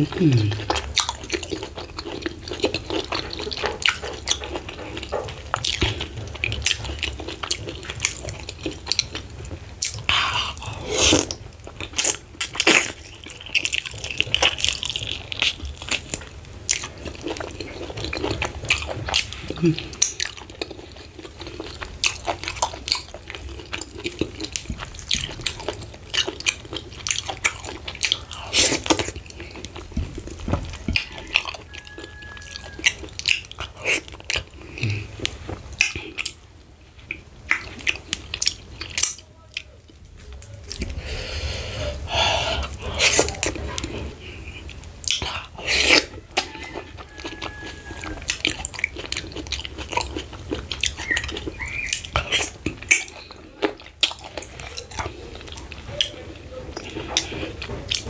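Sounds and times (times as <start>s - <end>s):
wet lip smacks and chewing: 44.6s - 58.0s.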